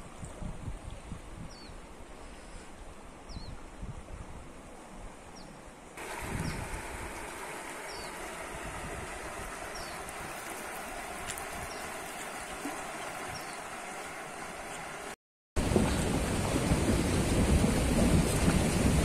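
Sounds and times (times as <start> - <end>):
river rushing: 6.0 - 19.0.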